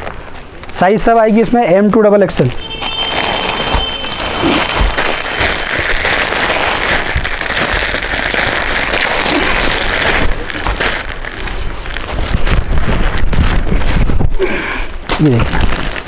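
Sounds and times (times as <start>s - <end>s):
plastic packaging crinkling: 2.3s - 16.0s.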